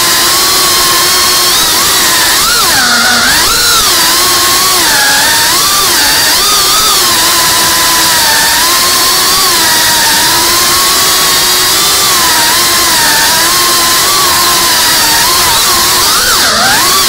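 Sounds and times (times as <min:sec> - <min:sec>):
quadcopter motors buzzing: 0:00.0 - 0:17.0.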